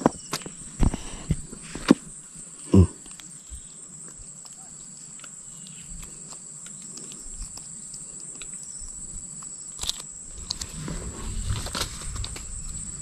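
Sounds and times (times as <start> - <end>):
high-pitched insect chorus: 0.0 - 13.0
small clicks: 5.2 - 10.7.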